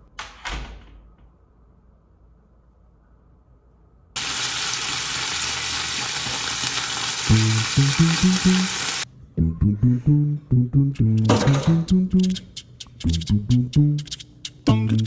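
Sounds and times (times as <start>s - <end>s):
meat sizzling in a frying pan: 4.2s - 9.0s
plucked bass music: 9.4s - 15.0s.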